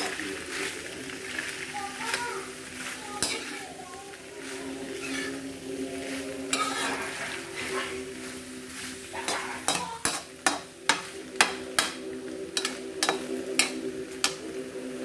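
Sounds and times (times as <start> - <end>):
metal spoon scraping wok: 2.7 - 3.7, 4.4 - 14.6.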